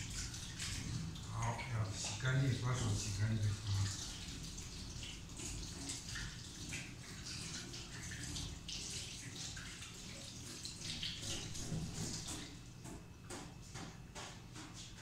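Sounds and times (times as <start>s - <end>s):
hands being washed: 0.0s - 12.6s
tap water splashing into metal sink: 0.0s - 15.0s.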